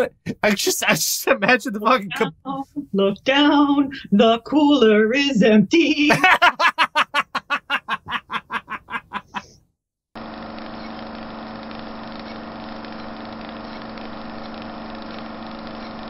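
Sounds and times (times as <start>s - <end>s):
man laughing: 0.0s - 2.8s, 6.1s - 9.6s.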